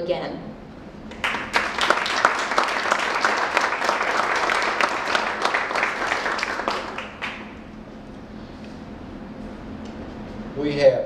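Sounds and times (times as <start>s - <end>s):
audience applauding: 1.1s - 7.7s.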